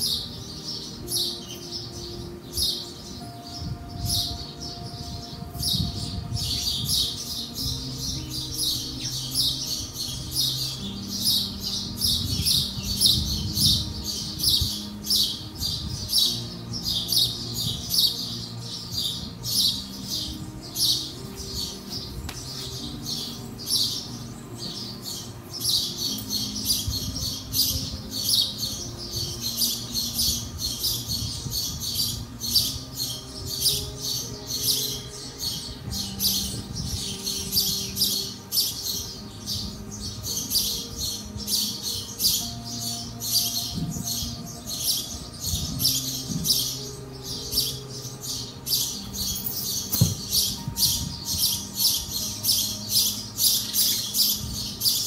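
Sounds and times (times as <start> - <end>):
small birds chirping: 0.0 - 55.0
soft music with low held notes: 0.0 - 55.0.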